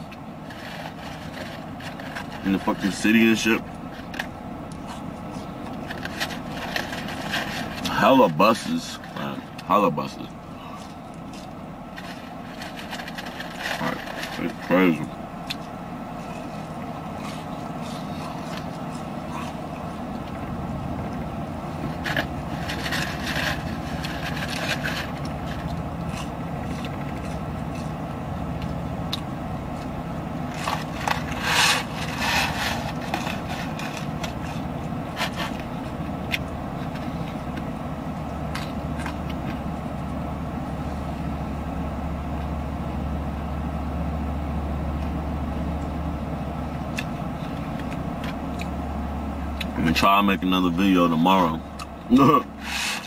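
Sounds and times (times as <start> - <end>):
clicks and rustling handling noise: 0.0 - 40.2.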